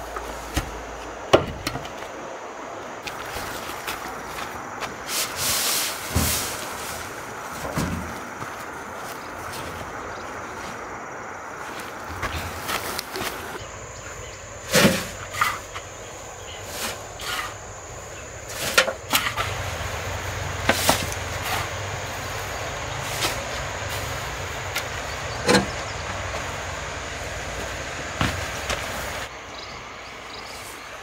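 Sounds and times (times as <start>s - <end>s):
shovel scraping wood shavings: 5.0s - 8.0s, 14.6s - 25.0s
shavings knocking into wheelbarrow: 5.1s - 8.3s, 20.6s - 21.8s.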